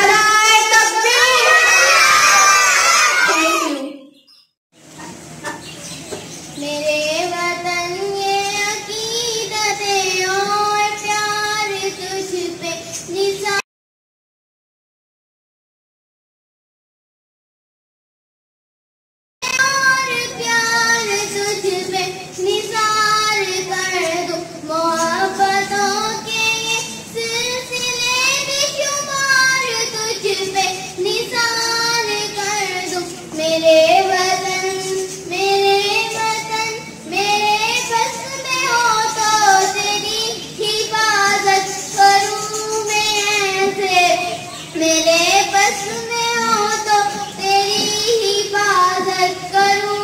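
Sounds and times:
girl singing into a microphone: 0.0 - 1.9, 6.6 - 13.6, 19.4 - 50.0.

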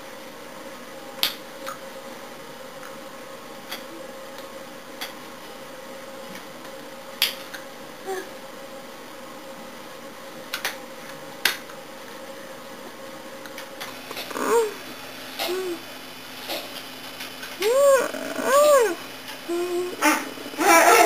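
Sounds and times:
steady hum: 11.8 - 21.0.

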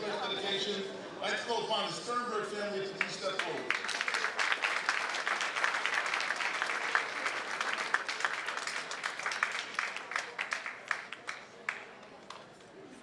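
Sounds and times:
audience applauding: 3.0 - 12.4.

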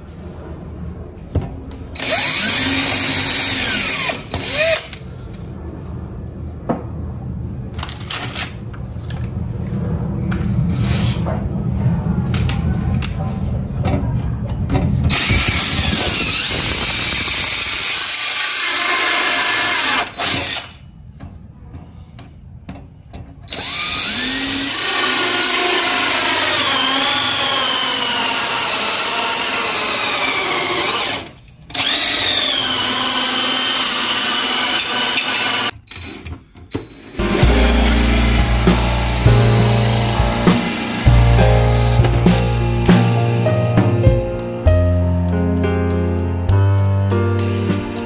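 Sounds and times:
electric drill running: 2.0 - 5.0, 15.1 - 20.8, 23.5 - 35.7, 37.2 - 41.2.

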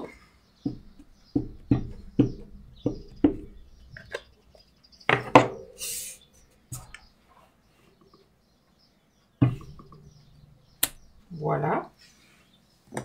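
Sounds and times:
objects knocking on table: 9.4 - 10.4.

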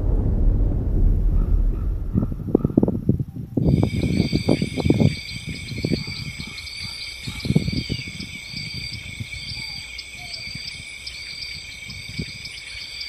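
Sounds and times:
wind buffeting microphone: 0.0 - 13.0
insects trilling: 3.6 - 13.0.

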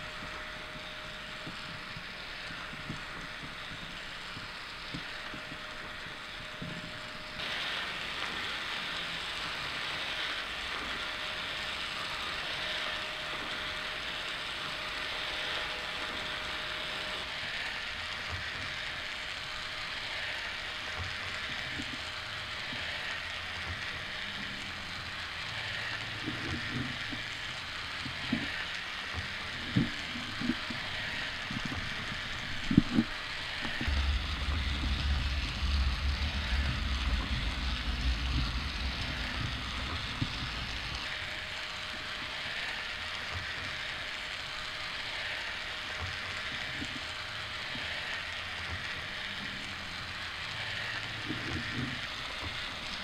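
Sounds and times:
faint steady hum: 0.0 - 53.0
soft low thumps: 33.8 - 41.0.

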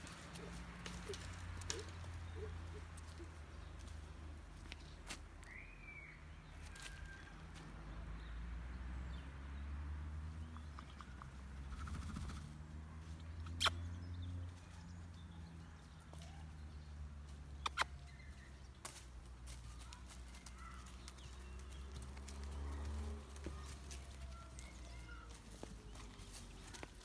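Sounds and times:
hooves stepping on leaf litter: 0.0 - 5.7, 18.0 - 27.0.

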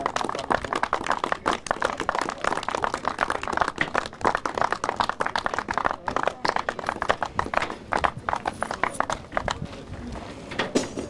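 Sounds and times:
small group clapping: 0.0 - 9.9.

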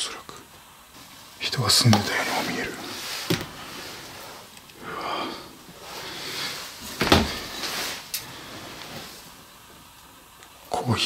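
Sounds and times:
soft breathy rustles: 1.0 - 9.5
thump: 7.0 - 7.4.

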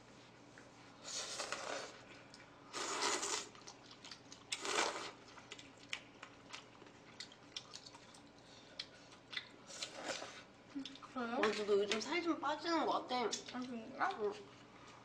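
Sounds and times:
slurping noodles: 1.0 - 2.0, 2.7 - 3.7, 4.5 - 5.2, 9.7 - 10.5
eating clicks and smacks: 5.3 - 9.6.

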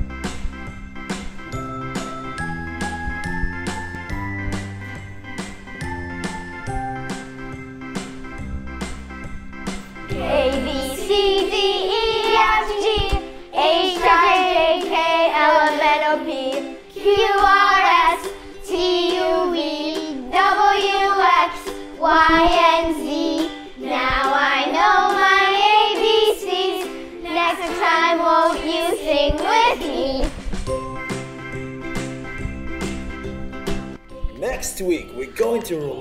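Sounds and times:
backing music: 0.0 - 36.0
children singing: 10.1 - 30.4.

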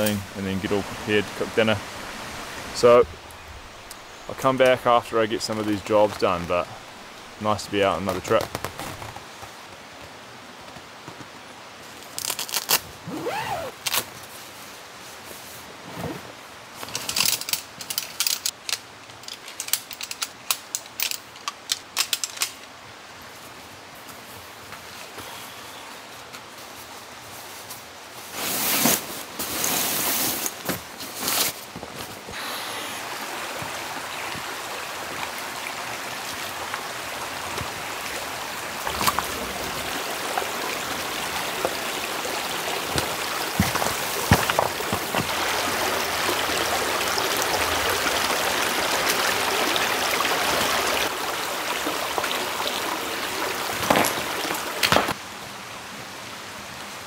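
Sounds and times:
rocky stream running: 0.0 - 14.2, 30.4 - 55.3
river stones knocking: 38.7 - 42.0, 42.6 - 46.3, 53.4 - 55.2.

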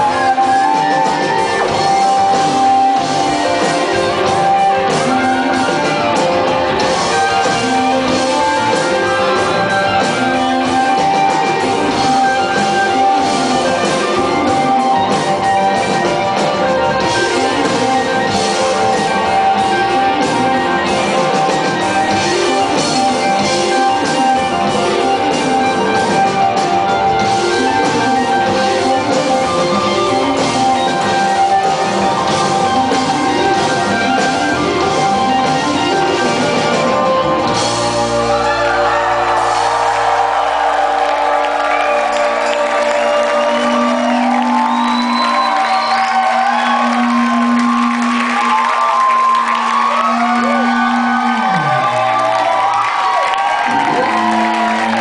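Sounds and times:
rock band playing live: 0.0 - 55.0
held high guitar note: 42.1 - 55.0.

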